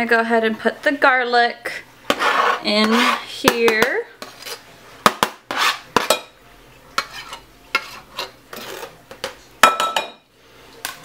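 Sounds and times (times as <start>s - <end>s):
knife scraping a cutting board: 2.1s - 3.3s, 4.2s - 6.1s, 7.0s - 9.0s.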